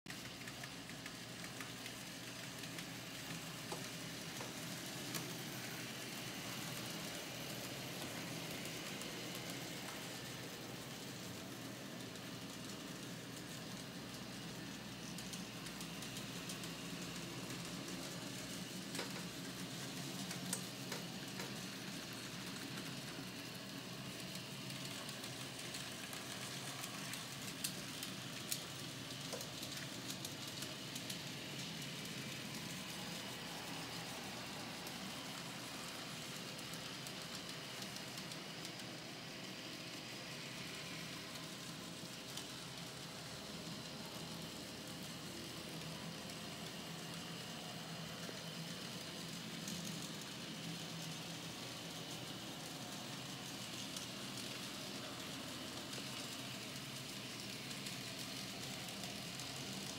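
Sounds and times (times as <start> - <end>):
model train motors whirring: 0.1 - 59.9.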